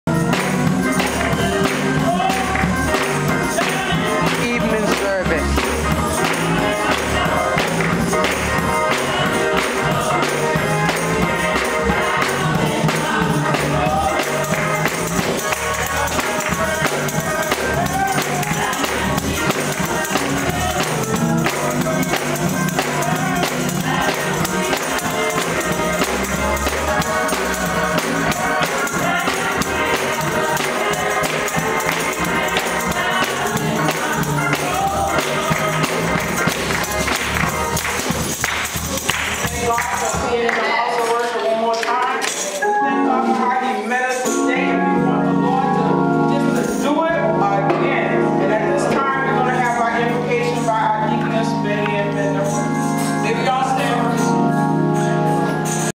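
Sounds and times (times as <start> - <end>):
percussive beat: 0.1 - 40.5
organ: 0.1 - 55.9
voices singing: 0.1 - 55.9.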